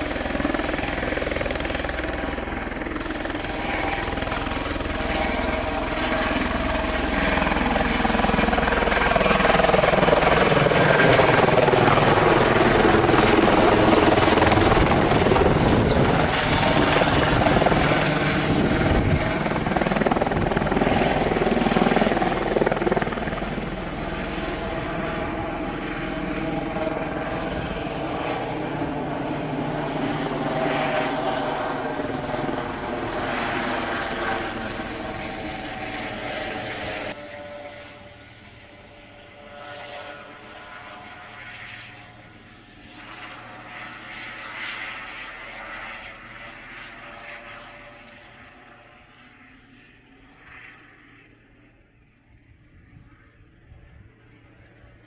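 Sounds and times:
high turbine whine: 0:00.0 - 0:38.0
helicopter hovering: 0:00.0 - 0:55.0.

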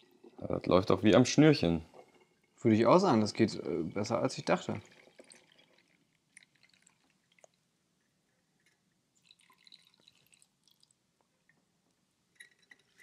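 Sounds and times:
liquid dripping into bottle: 0:03.2 - 0:07.7, 0:08.6 - 0:11.7.

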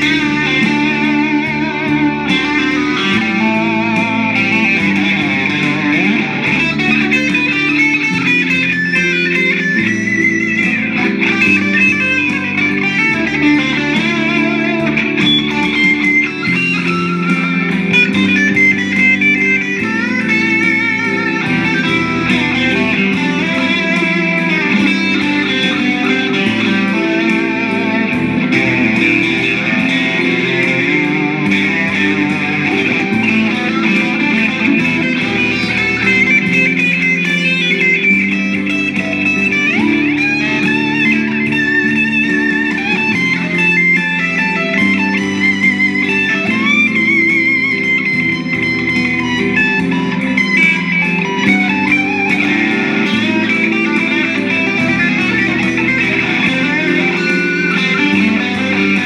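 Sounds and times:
backing track with bass line: 0:00.0 - 0:59.0
electric guitar lead lines: 0:00.0 - 0:59.0.

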